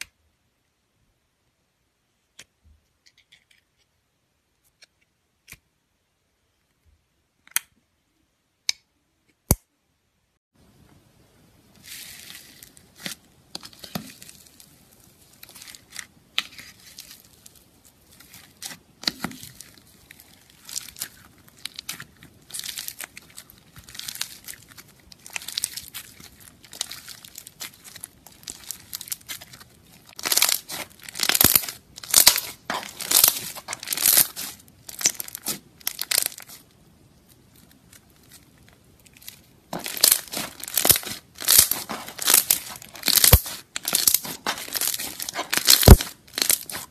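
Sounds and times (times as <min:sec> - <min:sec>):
foam beads crackling and crunching: 0:11.7 - 0:46.9.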